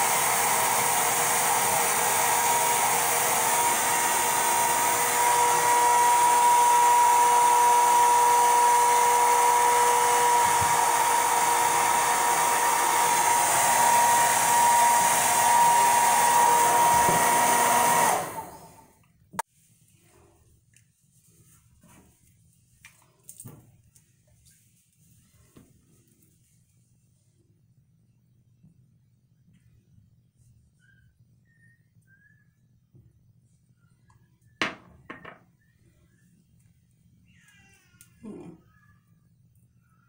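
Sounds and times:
hair dryer whining: 0.0 - 19.5.

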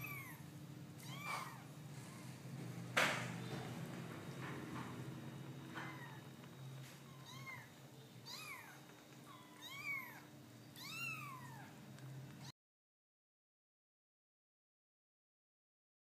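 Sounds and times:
kittens mewing: 0.0 - 2.5, 7.0 - 11.8.

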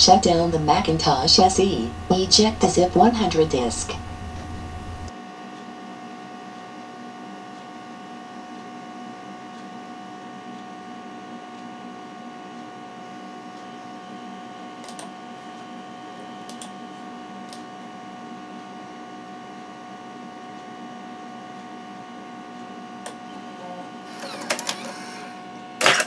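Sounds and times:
computer electrical hum: 0.0 - 26.0.

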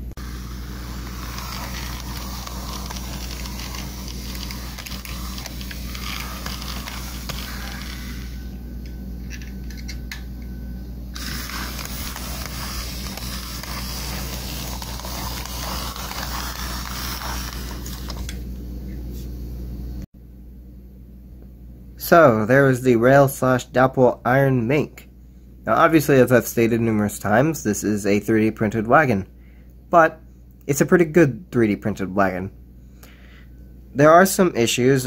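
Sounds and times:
model train motor hum: 0.2 - 8.4, 11.2 - 18.3.

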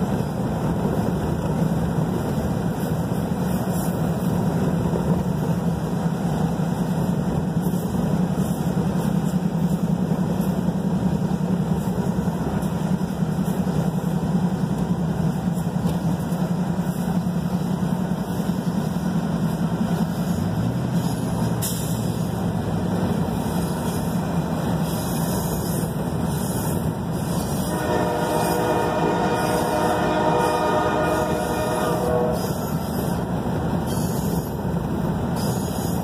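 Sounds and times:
car road noise: 0.0 - 36.0
diesel locomotives running: 0.0 - 36.0
locomotive air horn: 27.4 - 33.2.

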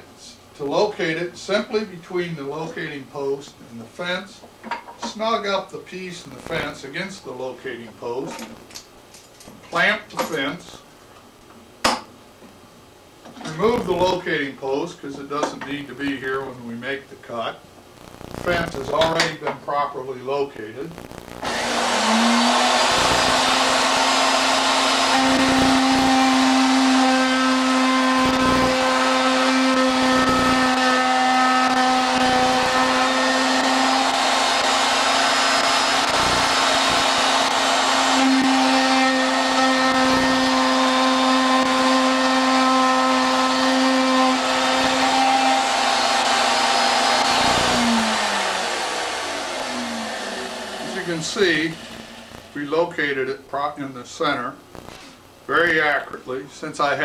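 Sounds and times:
router whining: 21.0 - 52.6
router cutting wood: 21.4 - 52.8.

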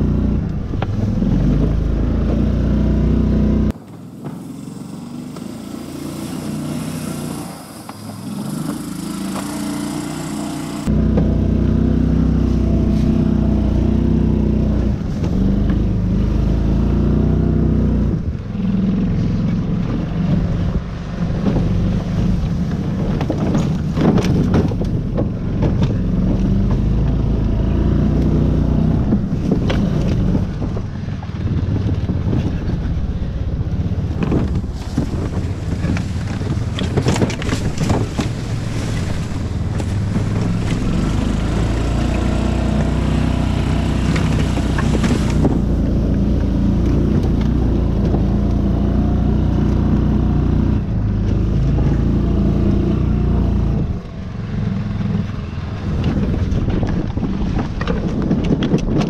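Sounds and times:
small engine running under load: 3.7 - 11.2
knocks and rattles from bumps: 19.8 - 27.3, 34.0 - 43.0, 55.1 - 59.0.

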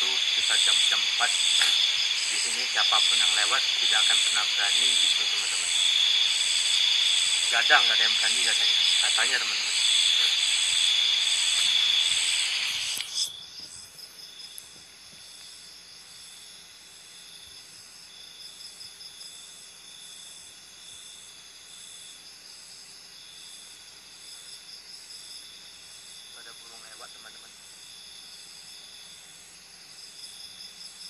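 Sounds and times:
loud hiss: 0.0 - 13.9
night insects trilling: 0.0 - 31.0.

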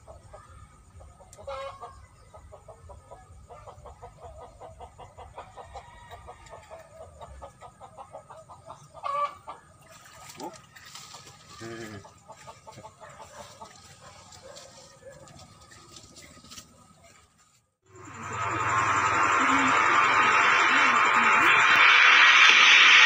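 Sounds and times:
chickens clucking: 0.0 - 5.8, 6.4 - 10.5, 11.1 - 17.1
chicken squawks: 7.9 - 9.6.

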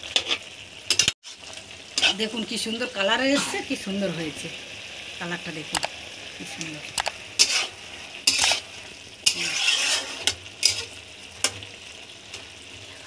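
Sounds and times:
spatula scraping metal pan: 0.0 - 2.2, 7.4 - 11.6
faint sizzle from pan: 0.0 - 13.0.

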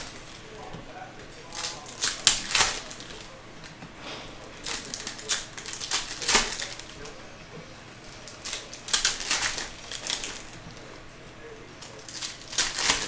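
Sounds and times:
card pack wrappers crinkling: 0.0 - 7.2, 8.0 - 13.0
cards being handled: 0.0 - 11.0, 11.6 - 13.0.

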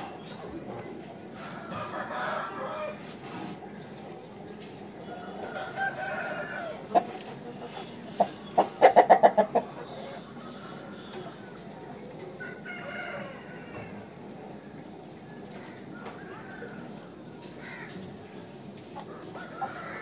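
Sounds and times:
rooster crowing: 1.4 - 3.2, 5.1 - 6.9, 12.4 - 14.1, 19.1 - 20.0
rooster clucking: 5.2 - 11.7.

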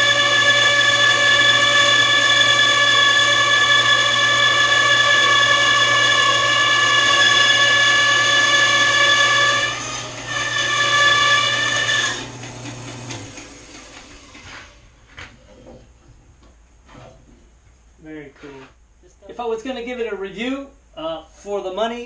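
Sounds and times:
bandsaw blade whining: 0.0 - 15.0
motor hum: 0.0 - 17.7.

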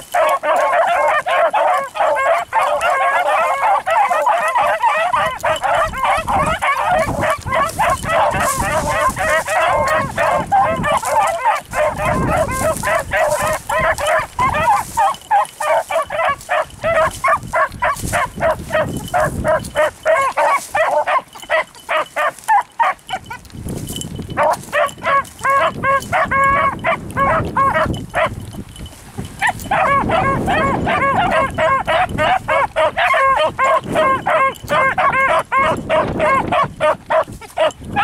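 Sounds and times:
dogs baying: 0.0 - 38.0.

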